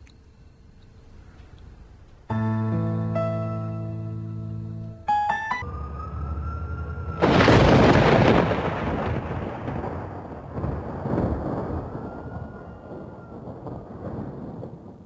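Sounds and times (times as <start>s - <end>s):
thunder clap rumbling: 5.6s - 15.0s.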